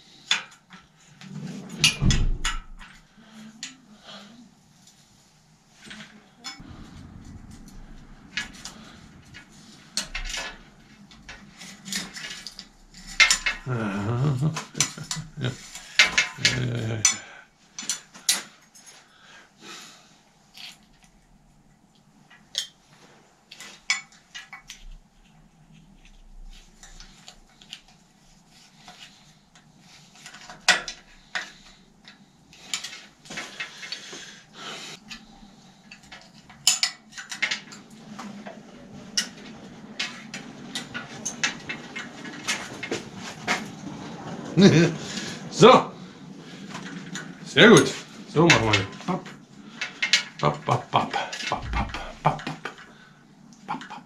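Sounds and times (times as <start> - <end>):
low wavering drawn-out sound: 6.4 - 14.5
metal tools clinking and tapping: 10.0 - 13.7, 14.5 - 19.1, 30.2 - 34.0, 35.9 - 37.9.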